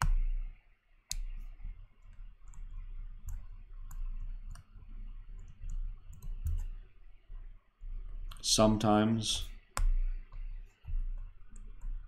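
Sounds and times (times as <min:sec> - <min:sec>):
stylus tapping on tablet screen: 0:00.0 - 0:00.4, 0:09.6 - 0:12.0
steady low hum: 0:00.0 - 0:12.0.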